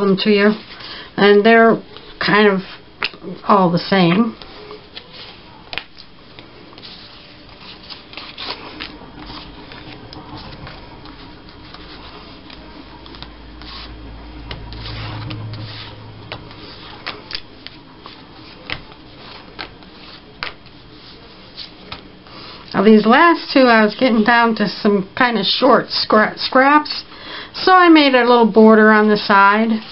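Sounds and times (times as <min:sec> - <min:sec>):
low rumble: 0:14.0 - 0:16.5.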